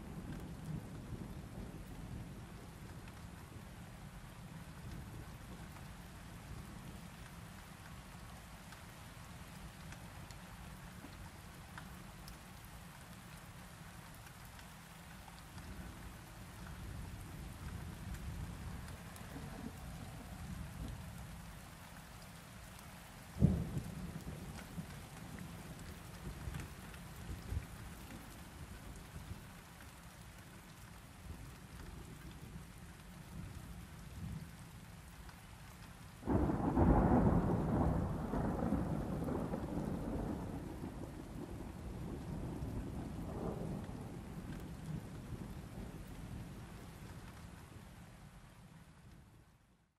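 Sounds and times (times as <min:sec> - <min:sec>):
steady rain falling: 0:00.0 - 0:49.9
thunder cracking and rolling: 0:36.3 - 0:45.5.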